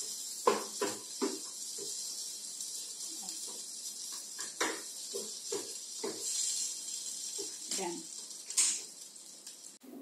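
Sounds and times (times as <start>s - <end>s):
steady high hiss: 0.0s - 10.0s
spatula knocking on frying pan: 0.4s - 2.0s, 3.5s - 6.4s.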